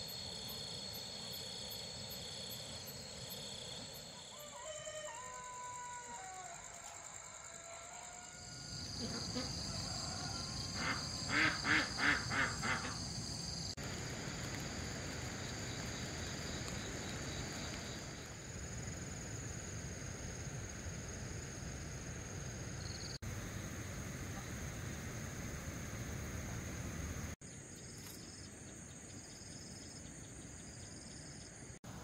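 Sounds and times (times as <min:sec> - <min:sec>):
insect chorus: 0:00.0 - 0:32.0.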